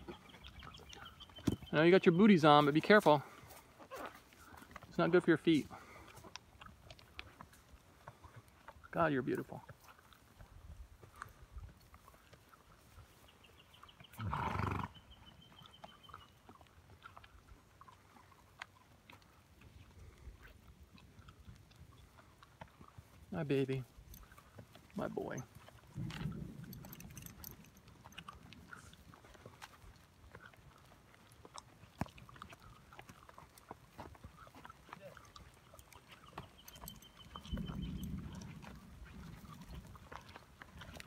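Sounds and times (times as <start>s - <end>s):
horse hooves on dirt trail: 0.0s - 41.0s
horse snorting: 14.1s - 15.1s.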